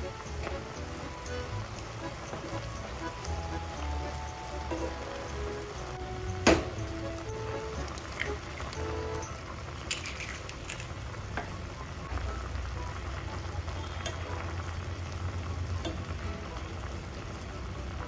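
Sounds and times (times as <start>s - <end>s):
noodles boiling in broth: 5.6s - 18.0s
chopsticks stirring noodles: 7.8s - 11.0s.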